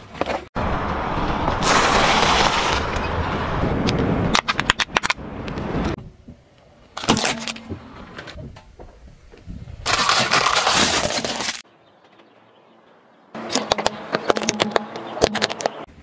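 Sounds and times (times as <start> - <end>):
tyre rushing on rough asphalt: 0.0 - 4.2.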